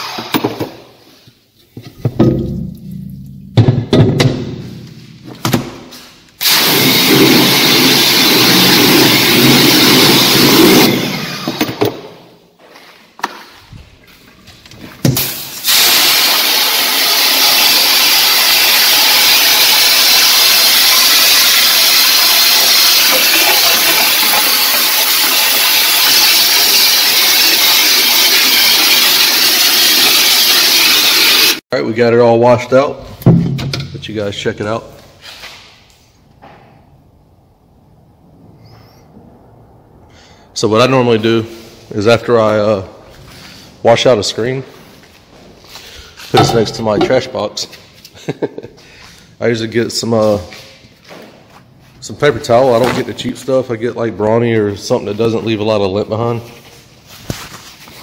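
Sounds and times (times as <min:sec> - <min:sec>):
water spraying from hose nozzle: 0:15.3 - 0:31.6.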